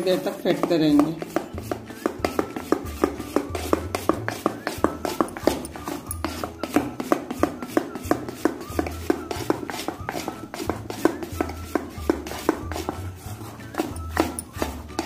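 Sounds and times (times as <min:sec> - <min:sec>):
batter beaten in metal bowl: 0:00.0 - 0:15.0.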